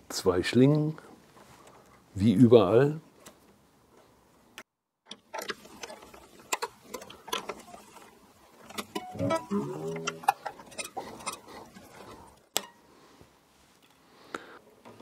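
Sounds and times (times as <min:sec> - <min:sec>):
guitar tuning machine clicking: 0:08.7 - 0:10.6
guitar string ringing rising in pitch: 0:09.0 - 0:10.3.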